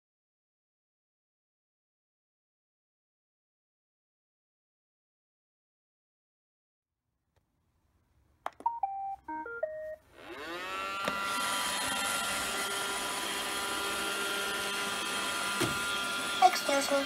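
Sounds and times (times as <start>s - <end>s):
electronic beep tune: 8.7s - 10.0s
vacuum motors whirring: 10.1s - 17.0s.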